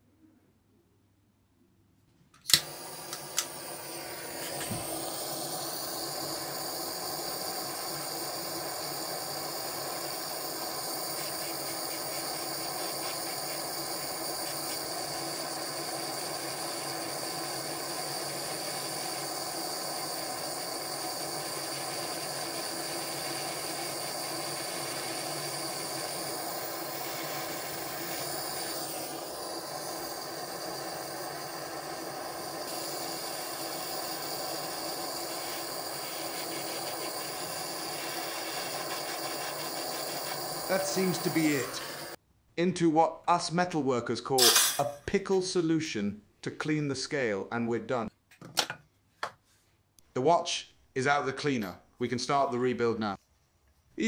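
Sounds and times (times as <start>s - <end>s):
gas torch hissing: 2.4s - 42.2s, 44.4s - 44.9s.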